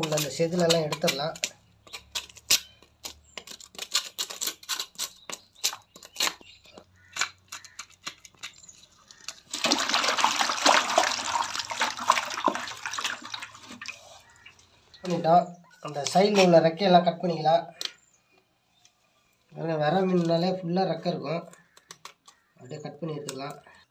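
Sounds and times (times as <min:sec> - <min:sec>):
knife scraping and cutting fish: 0:00.0 - 0:06.4
splashing water: 0:09.5 - 0:15.1.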